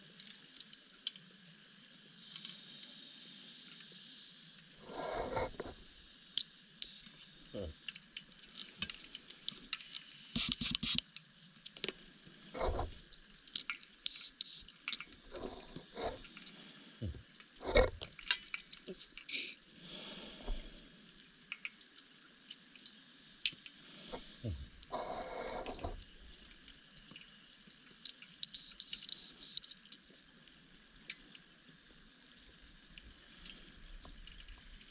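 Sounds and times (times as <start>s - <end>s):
faint steady hiss: 0.0s - 34.9s
sharp double clicks: 10.4s - 11.0s.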